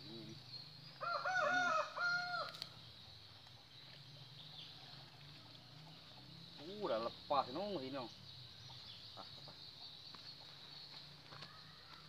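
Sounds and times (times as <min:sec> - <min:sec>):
rooster crowing: 0:01.0 - 0:02.6.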